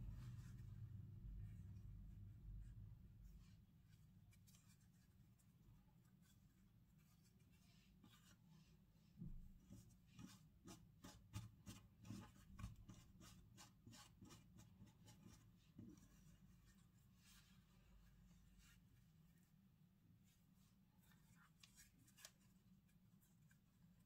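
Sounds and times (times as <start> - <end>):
soft handling clicks and rubbing: 20.2 - 24.0.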